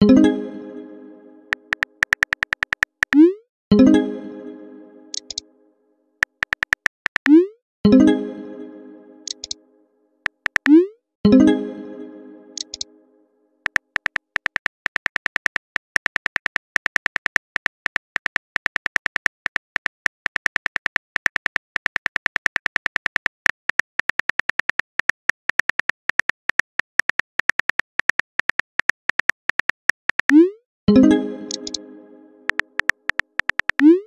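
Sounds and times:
keyboard typing clicks: 1.5s - 3.4s, 5.1s - 5.4s, 6.2s - 7.5s, 9.2s - 9.6s, 10.3s - 10.8s, 12.6s - 12.9s, 13.7s - 30.5s, 31.4s - 31.8s, 32.5s - 34.0s.

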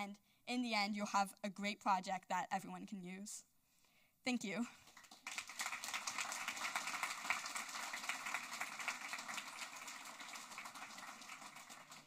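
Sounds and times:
audience applauding: 4.8s - 12.0s.

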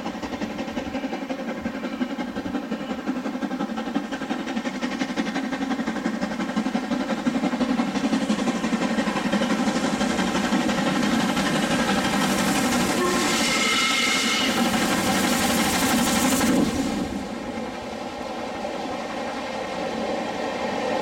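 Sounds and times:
steam locomotive exhaust beat: 0.0s - 21.0s.

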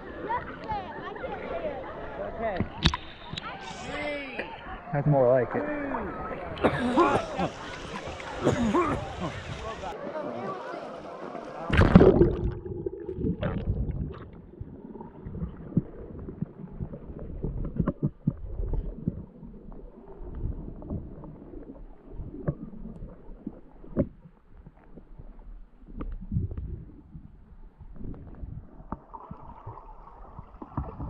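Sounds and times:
loud splash: 11.7s - 14.4s
low underwater rumble: 11.7s - 31.0s.

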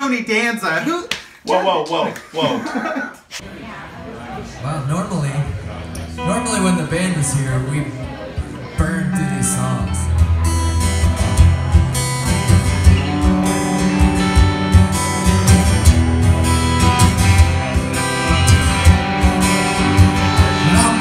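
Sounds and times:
bass: 4.6s - 21.0s
strummed guitars: 5.1s - 21.0s
rock song: 6.0s - 21.0s
vocals: 6.1s - 10.2s, 20.4s - 21.0s
steady drum beat: 10.2s - 21.0s.

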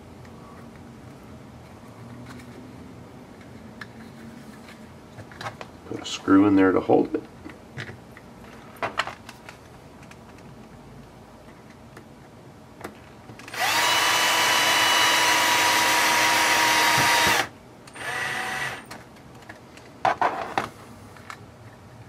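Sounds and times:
cordless drill motor driving screw: 13.4s - 18.9s.

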